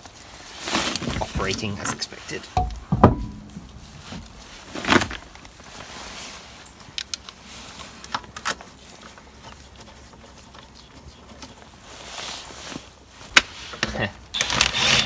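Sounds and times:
metal bolts clinking: 2.6 - 4.5.

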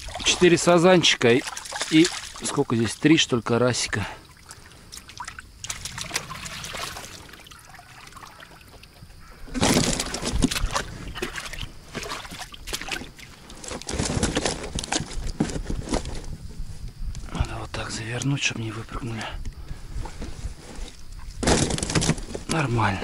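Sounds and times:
wet netting rustling: 0.0 - 3.0, 4.2 - 16.4, 20.0 - 22.9
water streaming and dripping: 0.0 - 9.2
water sloshing and splashing: 0.0 - 16.1, 20.7 - 23.0.

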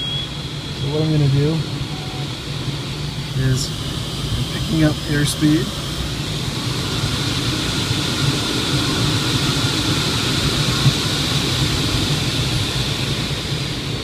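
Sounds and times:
faint high whistle: 0.0 - 1.3, 1.9 - 2.3
wind rushing over glider canopy: 5.7 - 14.0.

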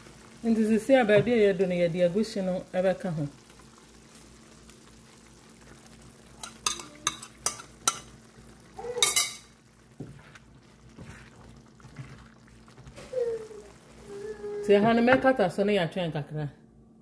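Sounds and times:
wooden spatula stirring stew: 9.8 - 14.1.

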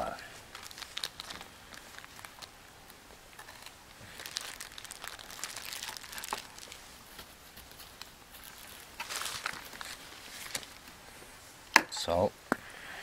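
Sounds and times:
plastic bag crinkling: 0.1 - 2.6, 3.3 - 10.9.

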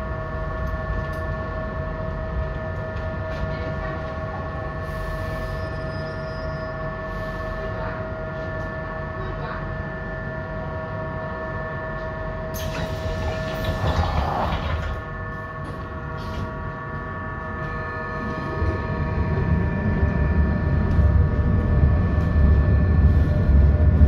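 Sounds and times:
tram electrical hum: 0.0 - 24.0
pneumatic doors hissing and clattering: 12.5 - 15.0.

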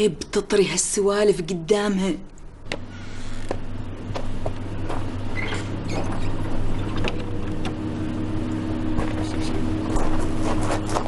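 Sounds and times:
car engine idling: 2.5 - 11.0.

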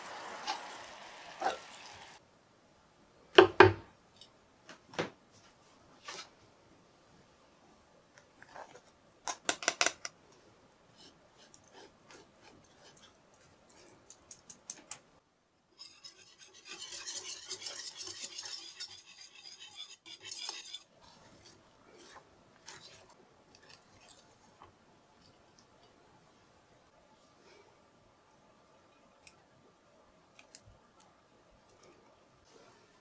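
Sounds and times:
whisk rattling in metal pan: 15.8 - 20.8
spatula scraping and tapping: 15.8 - 24.2.

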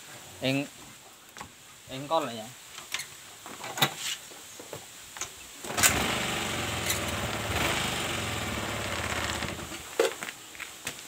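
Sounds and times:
scooter engine kick-started and running: 5.6 - 9.8.

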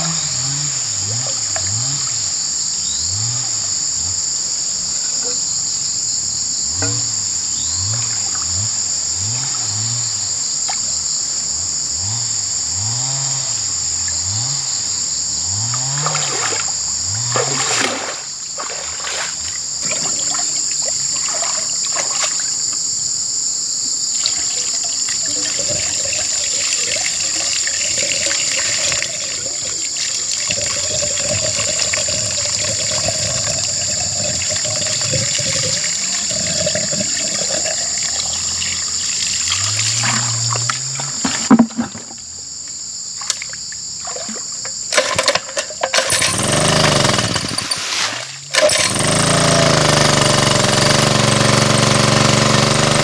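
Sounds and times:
insects droning: 0.0 - 53.0
water splashing around wading person: 16.0 - 22.6, 24.2 - 41.8, 43.3 - 46.3, 47.4 - 48.9
water poured from bucket: 16.1 - 22.4, 24.2 - 40.6, 44.0 - 50.2.

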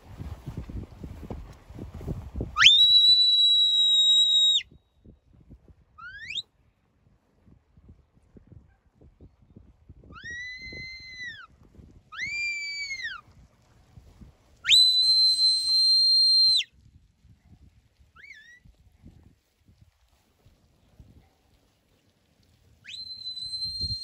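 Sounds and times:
shepherd's whistle: 2.6 - 4.8, 6.0 - 6.5, 12.1 - 13.2, 14.6 - 16.7, 18.2 - 18.7, 22.8 - 24.0.

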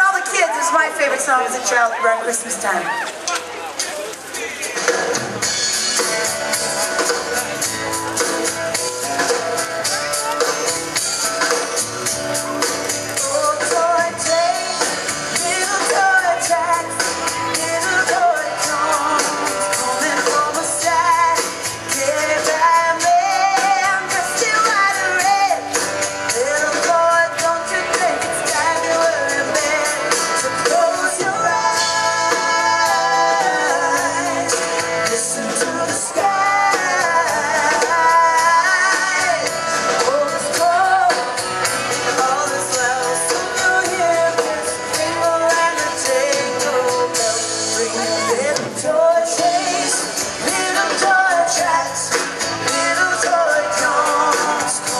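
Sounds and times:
live rock band playing: 0.0 - 54.9
woman singing: 13.1 - 54.9.

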